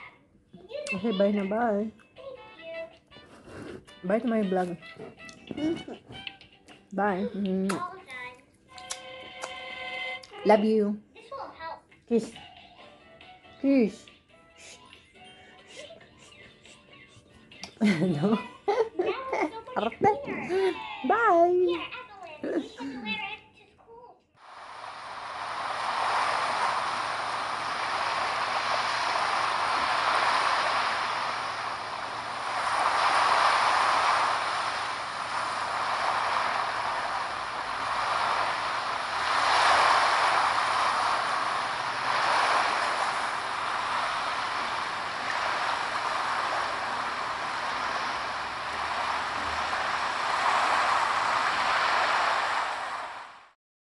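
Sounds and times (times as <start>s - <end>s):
waves breaking: 24.4s - 53.6s.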